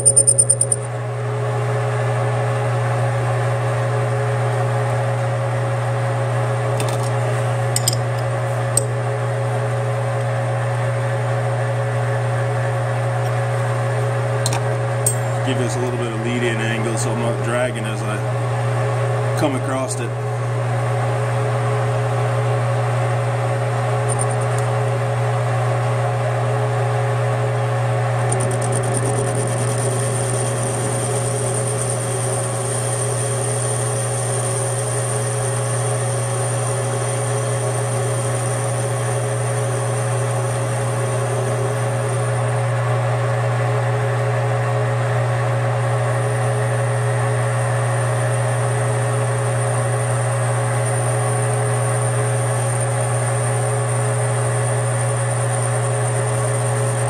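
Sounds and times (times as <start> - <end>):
thin high whine: 0.0 - 1.0, 28.3 - 42.6
low motor hum: 0.0 - 57.0
metal lathe cutting steel: 28.3 - 42.0.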